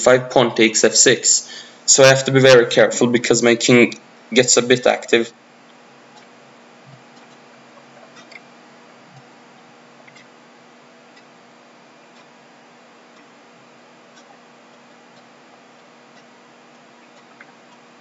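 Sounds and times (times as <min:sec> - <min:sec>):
low hum and hiss: 0:00.0 - 0:18.0
faint ticks: 0:05.6 - 0:10.4, 0:11.1 - 0:18.0.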